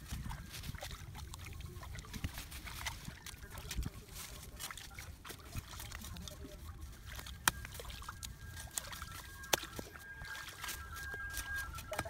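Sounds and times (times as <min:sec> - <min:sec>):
muddy water sloshing: 0:00.0 - 0:12.0.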